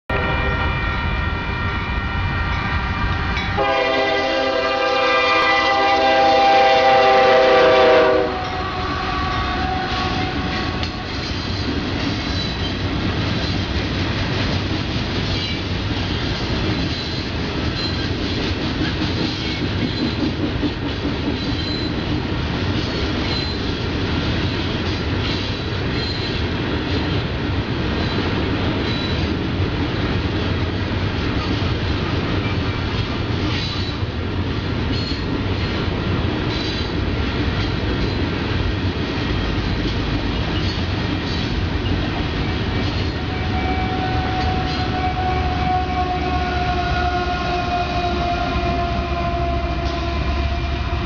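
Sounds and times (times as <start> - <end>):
locomotive horn blast: 0.1 - 11.4, 43.2 - 51.0
wheels clacking on rails: 2.5 - 51.0.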